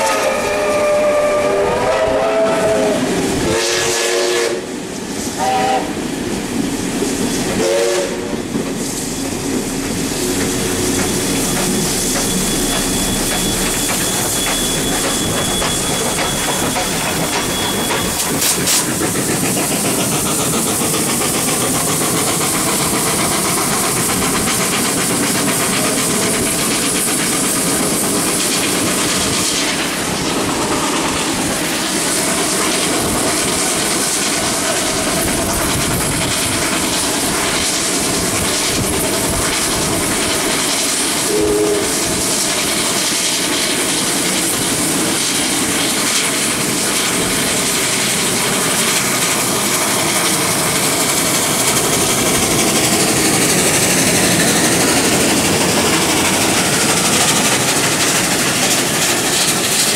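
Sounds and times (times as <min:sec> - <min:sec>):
steam locomotive whistle blasts: 0:00.0 - 0:06.0, 0:07.6 - 0:08.5, 0:10.5 - 0:18.9, 0:41.1 - 0:42.2
steam hissing: 0:00.0 - 0:59.9
steam train running at speed: 0:00.0 - 0:59.9
thin high whine: 0:09.0 - 0:18.6.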